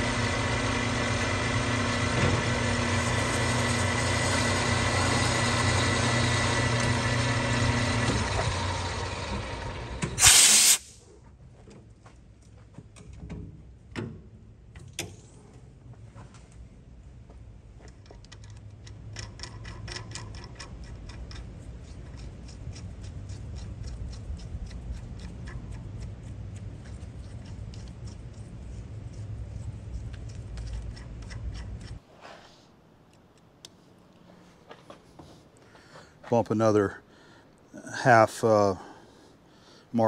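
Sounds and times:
low machine hum: 0.0 - 10.2.

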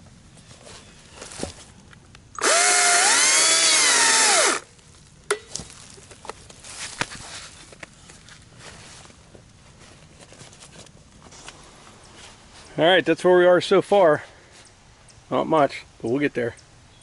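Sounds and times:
electric chainsaw cutting log: 2.4 - 4.7.

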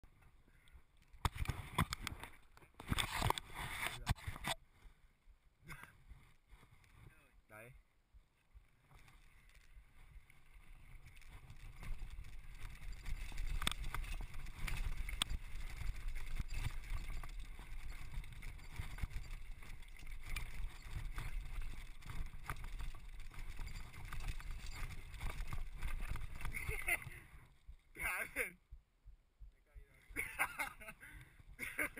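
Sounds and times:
wind rumbling on microphone: 8.5 - 28.0
bike rattling over bumps: 8.8 - 27.9
tyres crunching over stones: 8.9 - 27.2.

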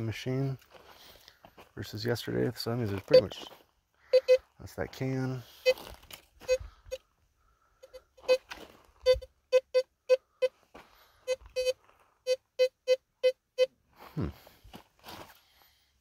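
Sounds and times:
metal detector beeping: 3.0 - 3.4, 4.1 - 4.5, 5.4 - 7.0, 7.8 - 10.6, 11.2 - 13.8.

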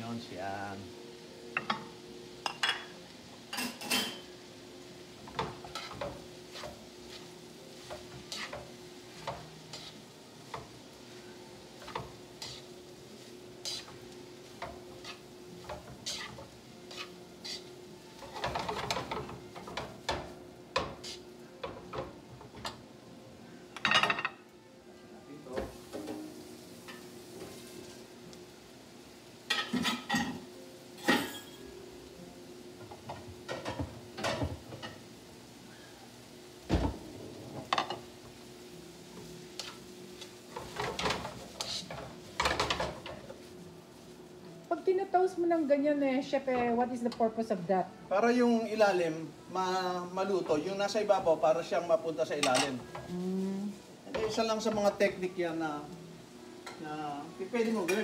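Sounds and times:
light frying sizzle: 0.0 - 58.0
metal tongs clinking in a pan: 3.5 - 4.2, 31.0 - 31.6, 57.8 - 58.0.

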